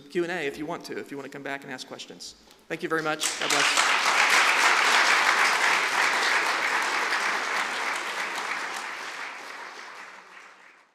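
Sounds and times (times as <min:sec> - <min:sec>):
audience applauding: 0:03.2 - 0:10.9.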